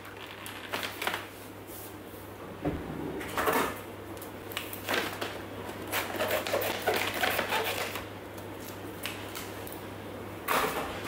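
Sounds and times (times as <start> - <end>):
scissors snipping plastic packet: 5.9 - 8.0.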